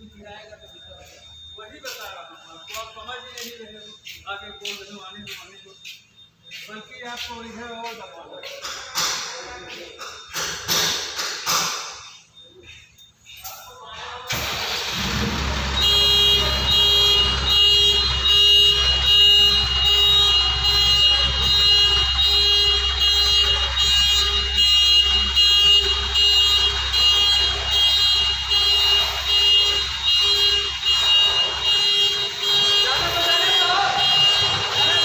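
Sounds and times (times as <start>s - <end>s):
electronic warning beeps: 0.0s - 35.0s.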